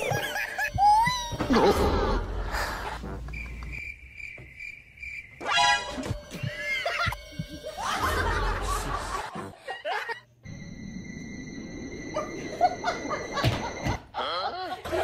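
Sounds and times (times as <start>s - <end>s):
person laughing: 6.4s - 10.2s, 12.5s - 15.0s.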